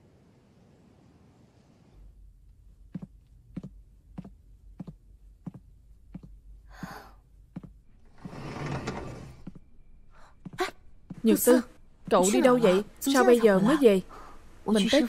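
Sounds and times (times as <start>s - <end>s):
steady low hum: 2.0s - 15.0s
hard-soled footsteps on hard floor: 2.9s - 6.4s, 7.5s - 8.4s, 10.4s - 11.4s.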